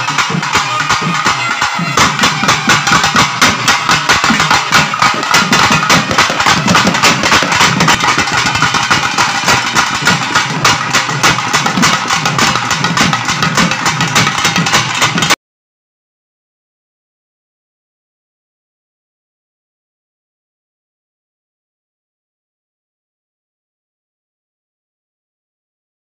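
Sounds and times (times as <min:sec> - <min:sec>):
fast festival drumming: 0:00.0 - 0:15.4.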